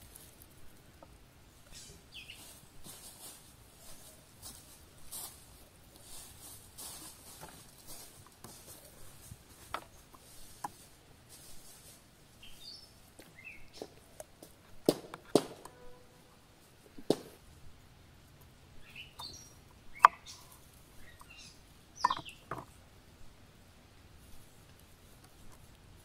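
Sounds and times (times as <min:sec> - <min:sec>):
bird chirping: 0:01.6 - 0:02.8, 0:12.4 - 0:14.2, 0:18.7 - 0:22.7.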